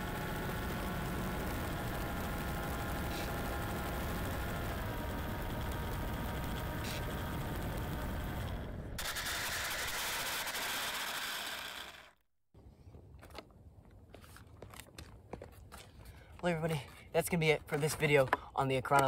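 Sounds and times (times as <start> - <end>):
motor and propeller whine: 0.0 - 12.2.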